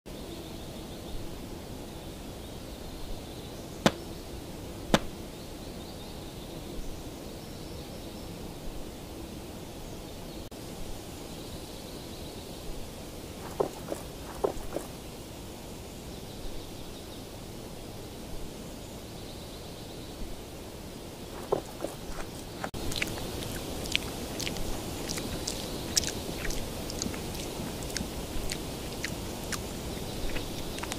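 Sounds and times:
forest ambience hiss: 0.1 - 30.9
monkey crunching food: 13.4 - 15.0, 21.4 - 30.9.

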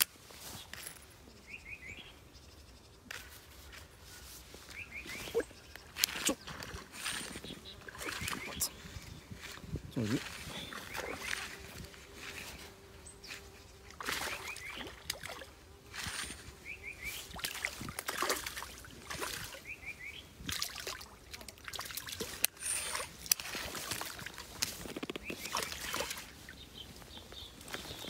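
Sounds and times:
fish splashing in water: 13.9 - 16.3, 17.2 - 19.7, 20.5 - 26.4.

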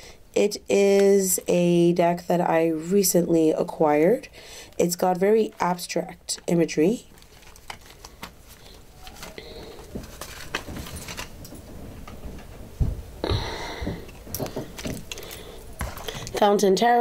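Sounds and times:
card deck clicks and rustles: 7.1 - 11.6
soft low thumps: 12.2 - 14.7.

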